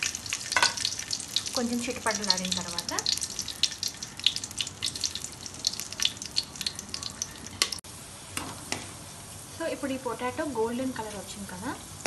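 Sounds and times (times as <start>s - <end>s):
spices spluttering in hot oil: 0.0s - 7.8s.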